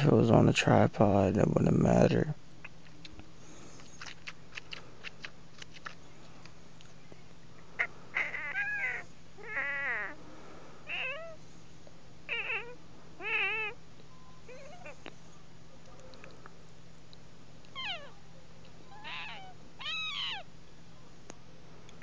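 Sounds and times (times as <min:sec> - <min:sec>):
teeth clicking: 0:03.8 - 0:06.0
teeth squeaking like meows: 0:08.2 - 0:10.2, 0:10.9 - 0:11.4, 0:12.3 - 0:13.8, 0:14.5 - 0:15.1, 0:17.6 - 0:18.2, 0:18.9 - 0:20.5.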